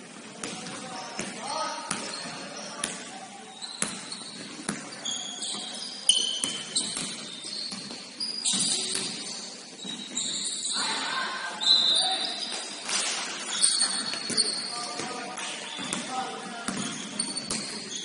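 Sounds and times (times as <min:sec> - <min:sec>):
shoes squeaking on court: 0:00.4 - 0:11.0, 0:11.6 - 0:18.0
ball bouncing: 0:03.8 - 0:04.9, 0:05.5 - 0:10.2, 0:13.5 - 0:16.1, 0:16.7 - 0:17.9.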